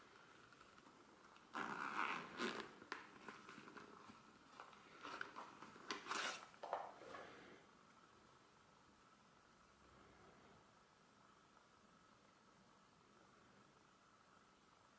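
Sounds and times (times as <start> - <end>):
zipper pulled open: 1.5 - 4.2, 5.0 - 6.5
leather rustling: 1.5 - 6.5.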